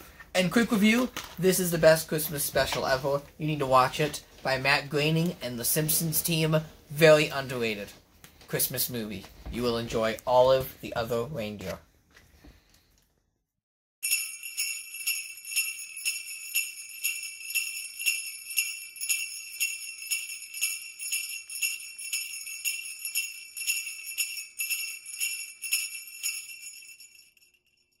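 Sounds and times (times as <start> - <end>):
jingle bells shaken: 14.0 - 28.0.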